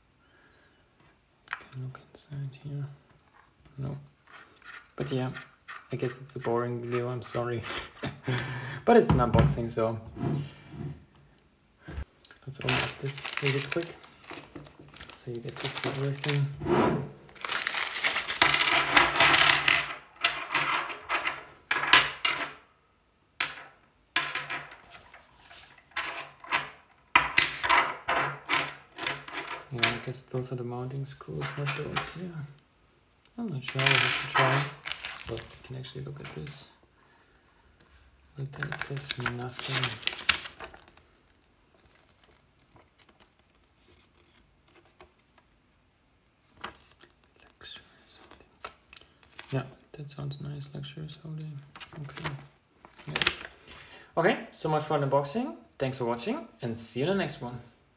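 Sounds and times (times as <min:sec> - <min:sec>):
paper leaflet rustling: 0:12.7 - 0:16.4, 0:34.8 - 0:35.7, 0:38.5 - 0:45.6, 0:46.4 - 0:47.5, 0:48.2 - 0:49.6, 0:51.6 - 0:53.6
metal screws clinking onto table: 0:17.4 - 0:22.6.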